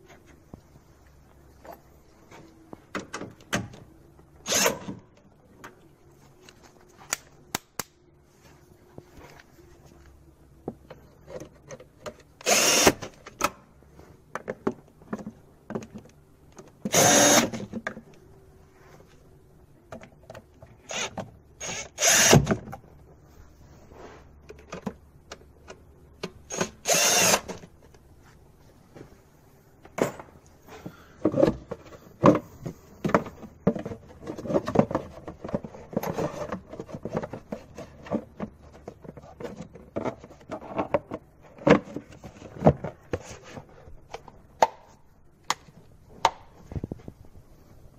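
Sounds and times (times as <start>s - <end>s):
power tool bursts: 17.0s - 17.5s.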